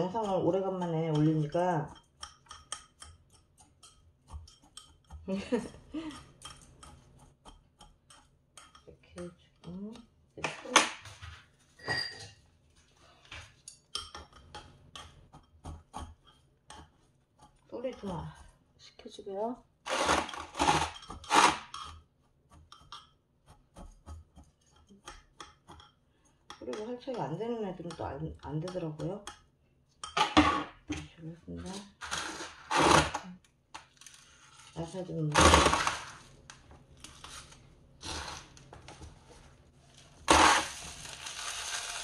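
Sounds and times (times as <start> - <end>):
hand scraping soil in a pot: 37.0 - 42.0
grit poured into earthenware pot: 39.9 - 42.0.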